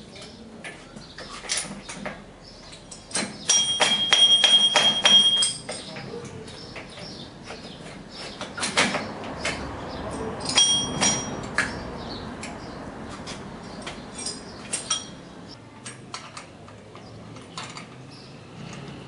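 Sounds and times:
spanner clinking against metal: 2.7s - 11.8s, 13.2s - 16.5s.

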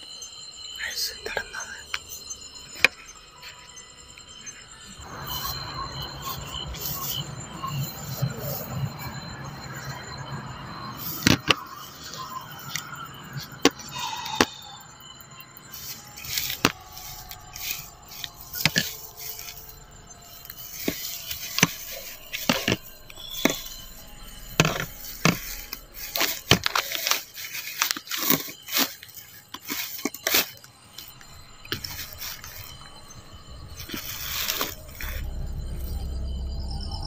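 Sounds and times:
footsteps through dry grass: 15.8s - 35.3s.

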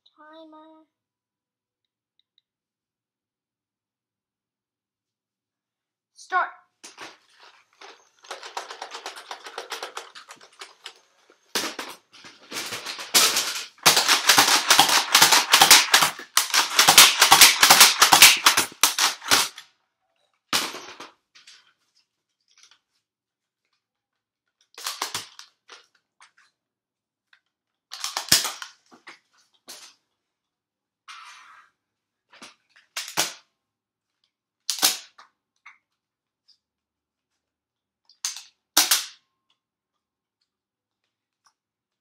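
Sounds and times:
sharp plastic clacks and snaps: 7.8s - 12.0s, 12.8s - 19.7s, 34.2s - 36.6s, 38.0s - 39.6s
foam dart blasters firing: 13.1s - 19.6s.

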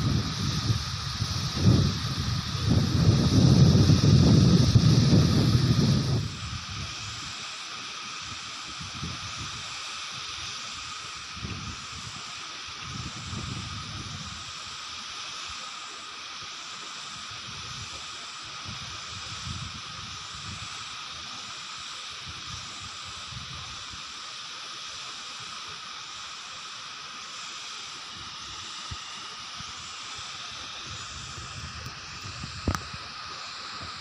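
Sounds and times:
wind buffeting microphone: 0.0s - 7.1s, 30.8s - 33.1s.

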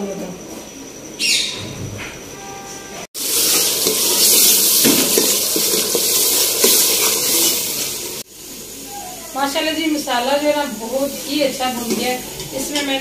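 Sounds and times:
food sizzling in hot fat: 3.2s - 13.0s
metal spoon scraping and stirring: 3.5s - 7.9s.

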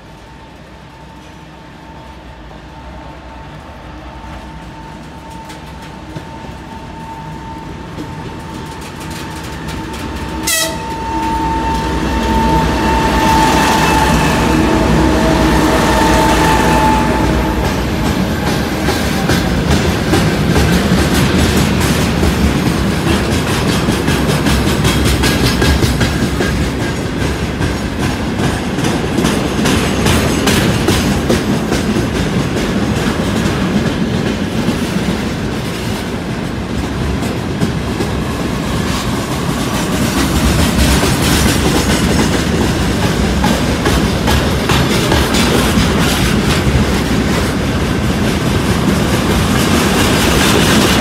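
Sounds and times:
diesel locomotive engine whine: 0.0s - 51.0s
freight train wheels clickety-clack: 0.0s - 51.0s.

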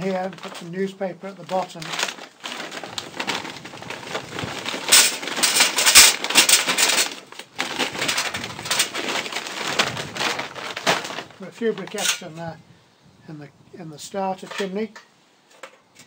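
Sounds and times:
bag rustling: 0.0s - 12.4s
charcoal clattering into metal: 0.0s - 12.4s, 14.4s - 16.0s.

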